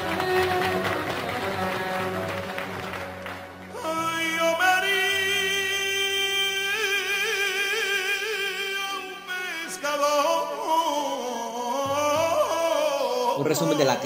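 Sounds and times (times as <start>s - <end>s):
person singing with vibrato: 3.7s - 14.0s.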